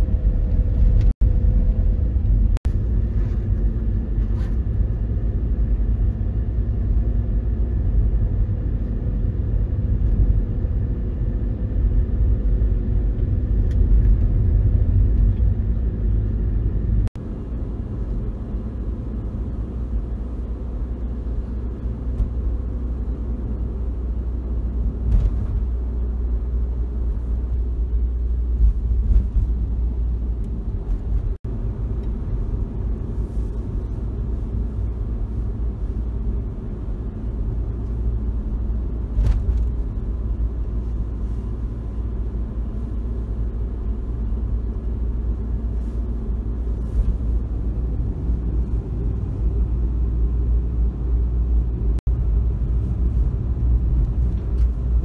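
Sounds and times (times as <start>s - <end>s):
van engine and road rumble: 0.0s - 55.0s.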